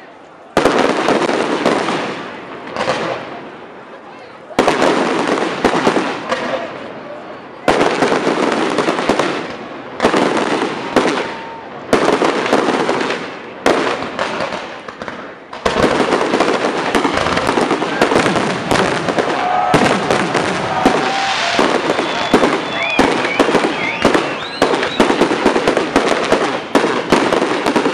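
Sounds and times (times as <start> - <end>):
firework crackling: 0.0 - 27.9
firework bangs: 0.4 - 27.9
firework whistles: 17.0 - 27.4.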